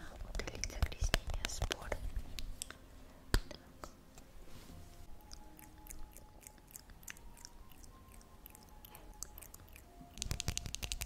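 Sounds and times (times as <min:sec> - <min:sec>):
whispering: 0:00.0 - 0:02.1, 0:03.4 - 0:04.0.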